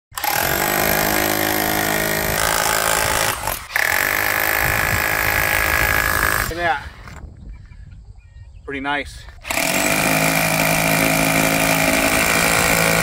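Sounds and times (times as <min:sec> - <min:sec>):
rotary hammer drill hammering: 0:00.1 - 0:06.5, 0:09.4 - 0:13.0.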